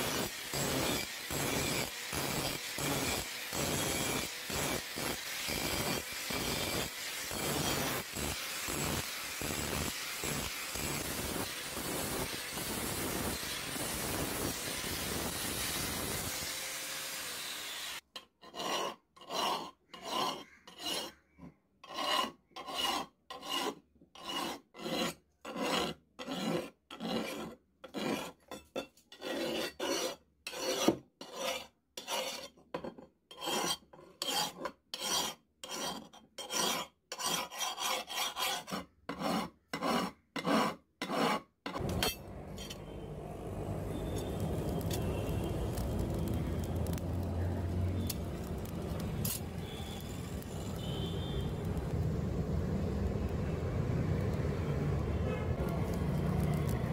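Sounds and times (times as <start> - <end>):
grinding hiss: 0.0 - 18.0, 41.8 - 54.8
hand file rasping on metal: 0.1 - 21.2, 21.8 - 32.6, 33.3 - 42.1.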